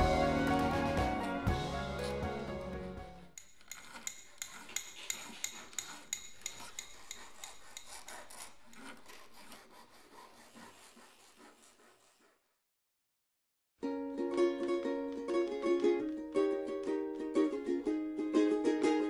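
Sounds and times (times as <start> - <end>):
rhythmic rasping scrape: 0.0 - 12.4.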